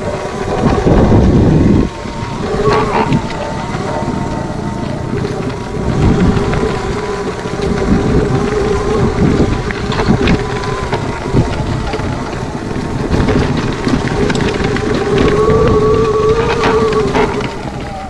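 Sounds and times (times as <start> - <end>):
electric motor whine: 0.0 - 18.0
tyres on rough ground: 0.0 - 18.0
wind buffeting microphone: 0.0 - 18.0.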